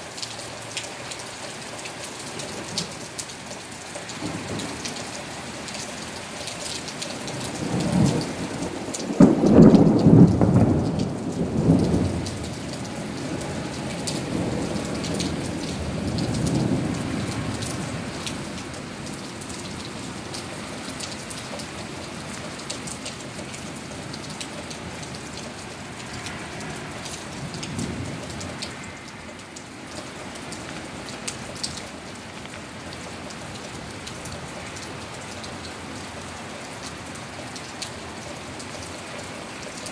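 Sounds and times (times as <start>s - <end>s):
heavy rain on pavement: 0.0s - 39.9s
rolling thunder: 7.6s - 18.4s, 24.2s - 29.4s.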